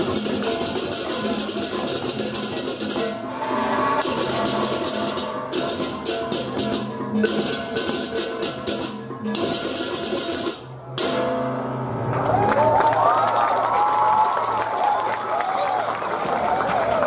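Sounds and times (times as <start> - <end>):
hand cymbals clashing: 0.0 - 11.2
drums: 0.0 - 12.4.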